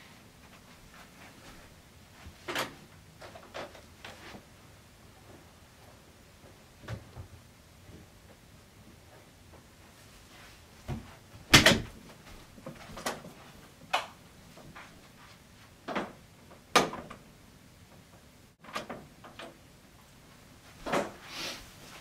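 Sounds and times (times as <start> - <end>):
doors and cupboards shutting: 10.9 - 12.0, 15.9 - 17.2, 20.8 - 21.4.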